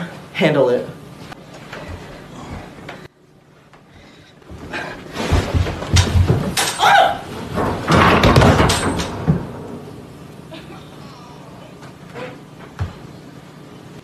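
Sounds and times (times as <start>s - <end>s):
bundle tumbling down stairs: 4.4s - 9.9s.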